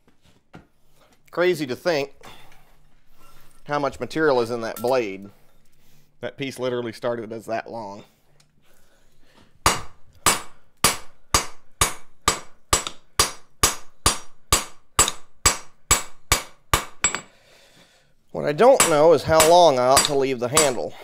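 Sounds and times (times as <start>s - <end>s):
hammer striking steel on anvil: 9.6s - 17.3s, 18.7s - 21.0s.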